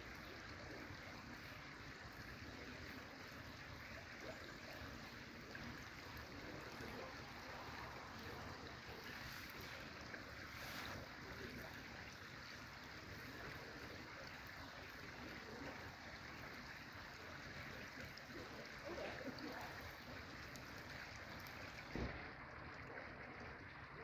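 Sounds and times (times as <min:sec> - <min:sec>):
river water flowing: 0:00.0 - 0:24.0
low thump: 0:21.9 - 0:22.2.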